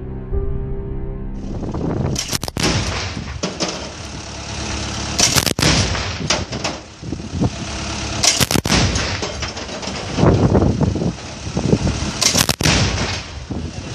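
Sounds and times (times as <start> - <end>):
steady rumble: 1.3 - 13.9
heavy gun firing bursts: 2.2 - 3.4, 5.2 - 6.3, 8.2 - 9.3, 12.2 - 13.4.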